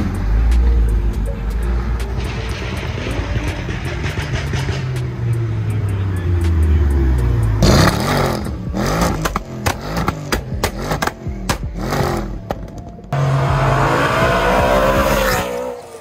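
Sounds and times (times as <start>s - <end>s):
car engine revving: 0.0s - 16.0s
music beat: 0.0s - 16.0s.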